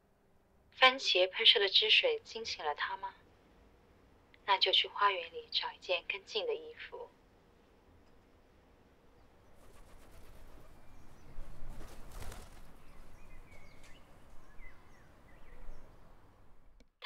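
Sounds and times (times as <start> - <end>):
low outdoor hush: 0.0 - 16.8.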